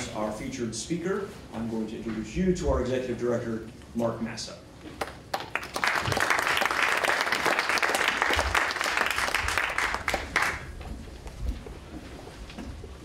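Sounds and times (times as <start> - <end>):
audience applauding: 5.0 - 10.8.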